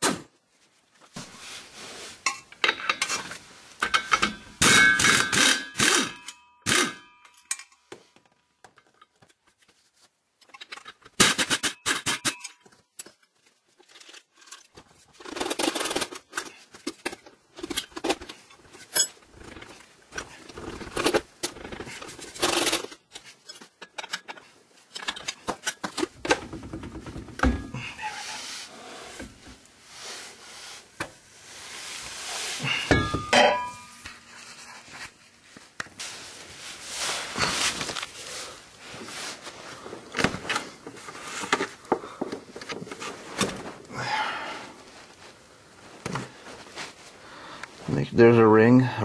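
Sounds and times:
metal tools clinking and scraping: 0:02.2 - 0:07.9, 0:10.4 - 0:26.2, 0:32.6 - 0:34.6.

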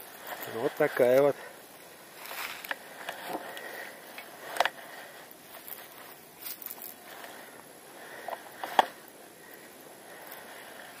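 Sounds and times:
dry grass rustling and crackling: 0:00.0 - 0:11.0.

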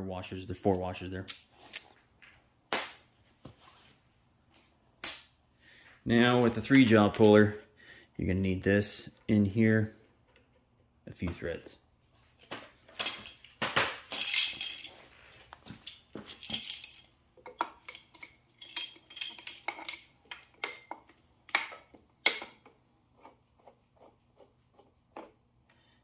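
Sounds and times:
metallic clinks and clatters: 0:12.9 - 0:13.5, 0:14.1 - 0:15.0, 0:15.6 - 0:21.8.

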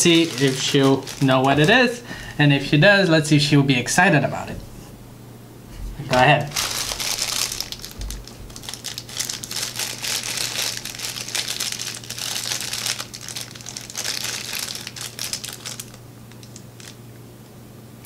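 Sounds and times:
foil bag crinkling: 0:00.0 - 0:02.2, 0:06.1 - 0:17.1.

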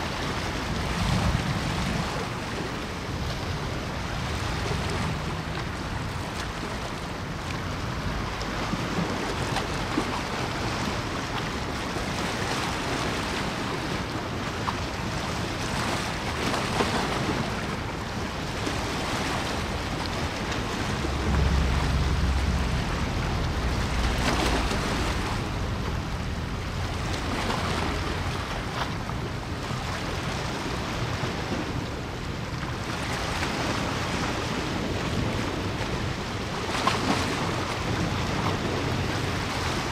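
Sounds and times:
water: 0:00.0 - 0:39.9
wind buffeting microphone: 0:00.0 - 0:39.9
wind rushing: 0:20.6 - 0:27.1.

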